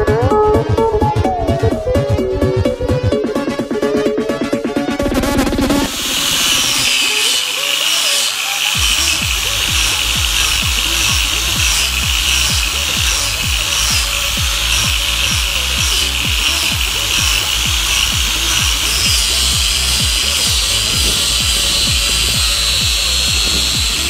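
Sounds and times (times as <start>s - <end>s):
background music with beat: 0.0s - 24.0s
grinder sanding wood: 5.5s - 24.0s.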